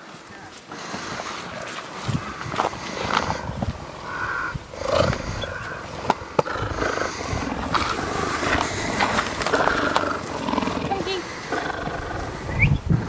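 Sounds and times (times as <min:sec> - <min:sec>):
cheetah purring: 0:00.3 - 0:13.0.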